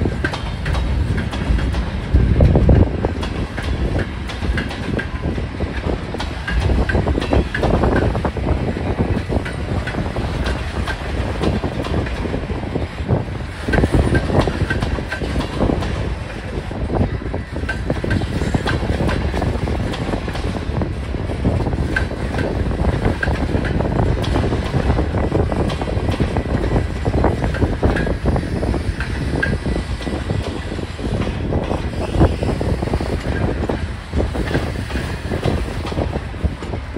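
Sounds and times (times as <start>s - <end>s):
wheels clicking over rail joints: 0.0s - 12.4s
train wheels rumbling on rail: 0.0s - 36.9s.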